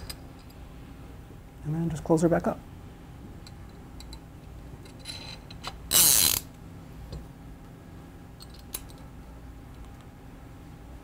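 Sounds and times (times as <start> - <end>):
fishing reel ratcheting buzz: 5.9 - 6.5.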